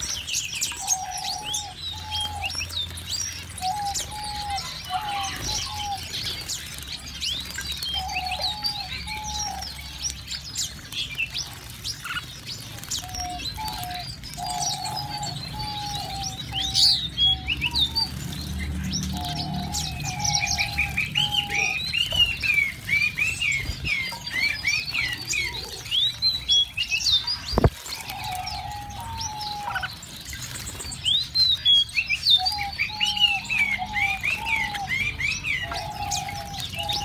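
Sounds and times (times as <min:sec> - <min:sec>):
birds splashing in water: 0:00.0 - 0:37.0
finches chirping and twittering: 0:00.0 - 0:37.0.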